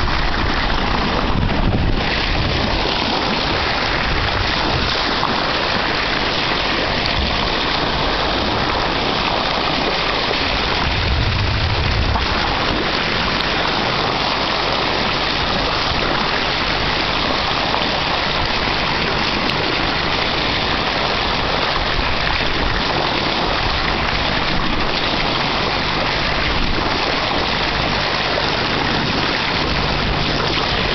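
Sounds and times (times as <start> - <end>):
low bump: 10.6 - 13.6.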